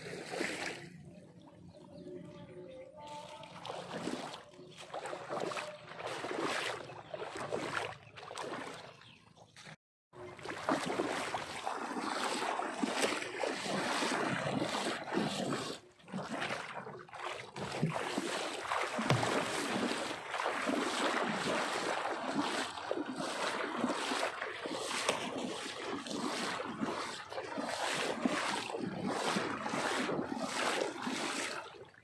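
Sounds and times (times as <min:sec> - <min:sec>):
water sloshing and splashing: 0:00.0 - 0:32.0.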